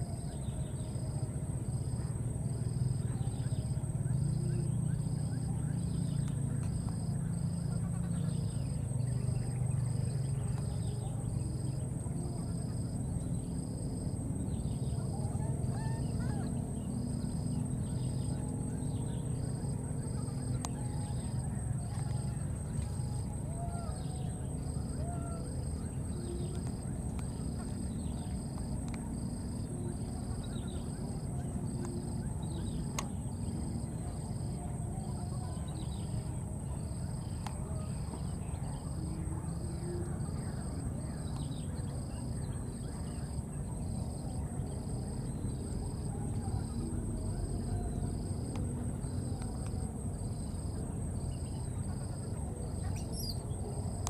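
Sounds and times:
insect chirping: 0.0s - 54.0s
steady low rumble: 0.0s - 54.0s
faint bird chirps: 50.3s - 54.0s.

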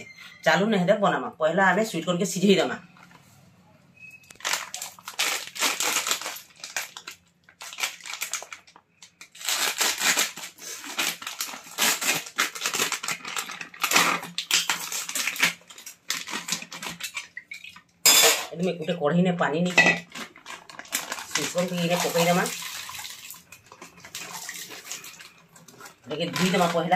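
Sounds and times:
plastic bag crinkling: 4.0s - 17.8s, 19.6s - 26.9s
knife cutting plastic bag: 4.3s - 8.6s, 9.2s - 17.2s, 20.0s - 23.2s, 23.8s - 26.9s.

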